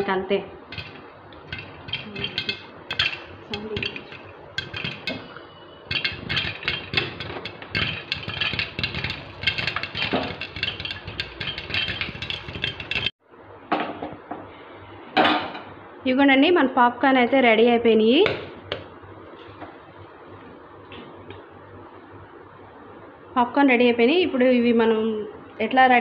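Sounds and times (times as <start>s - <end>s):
popcorn popping in a pot: 0.6s - 13.2s.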